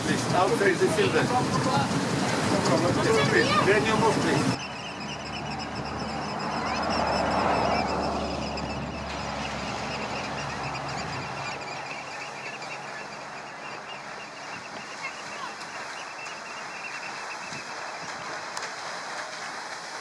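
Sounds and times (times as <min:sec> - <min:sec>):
steamer engine low hum: 0:00.0 - 0:20.0
water wash: 0:00.0 - 0:20.0.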